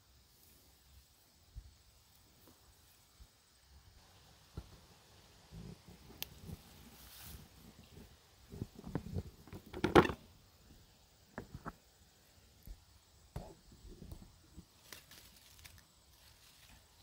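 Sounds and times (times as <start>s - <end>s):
rustling: 5.5s - 10.2s, 14.2s - 17.0s.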